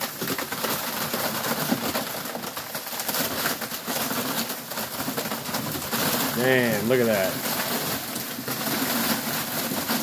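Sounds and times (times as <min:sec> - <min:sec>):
corn ears dropping on ground: 0:00.0 - 0:10.0
dry corn husks rustling: 0:00.0 - 0:10.0.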